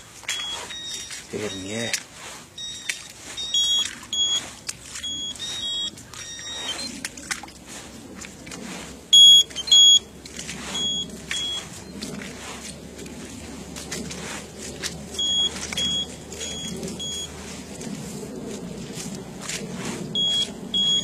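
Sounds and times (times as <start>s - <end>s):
grass rustling underfoot: 0.0s - 20.9s
short high-pitched beeps: 0.2s - 1.9s, 2.6s - 6.9s, 9.2s - 10.0s, 10.7s - 11.7s, 15.2s - 17.3s, 20.2s - 21.0s.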